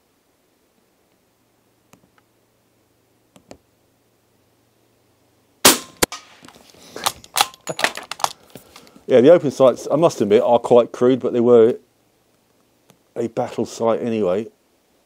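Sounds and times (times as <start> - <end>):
bullet striking target board: 5.6 - 6.4
suppressed gunshot: 5.6 - 6.4.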